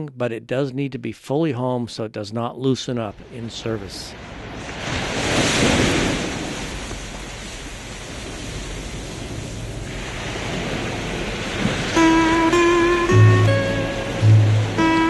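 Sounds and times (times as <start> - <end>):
ocean waves washing ashore: 3.0 - 15.0.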